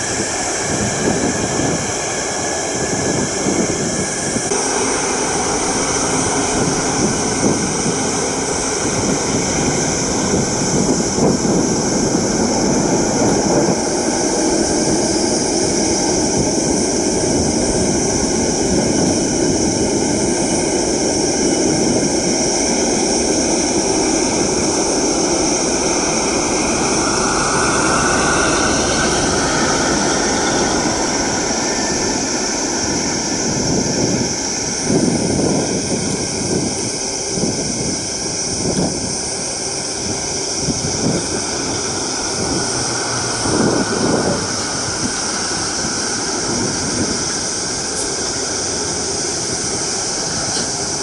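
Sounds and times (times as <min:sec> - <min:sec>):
jet engines running: 0:00.0 - 0:51.0
wind buffeting microphone: 0:00.0 - 0:51.0.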